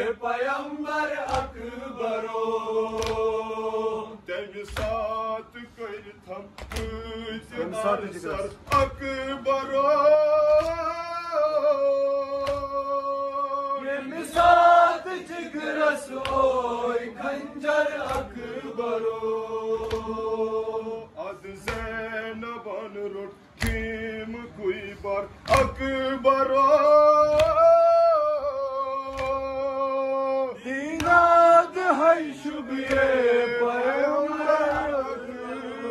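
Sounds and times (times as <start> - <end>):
men chanting lament: 0.0 - 35.9
hands slapping chests: 1.2 - 1.6, 2.9 - 3.4, 4.7 - 5.0, 6.6 - 7.0, 8.3 - 9.0, 10.5 - 10.9, 12.4 - 12.9, 16.2 - 16.7, 19.8 - 20.2, 25.4 - 25.8, 27.3 - 27.8, 29.1 - 29.6, 31.0 - 31.4, 32.8 - 33.2, 34.7 - 35.1.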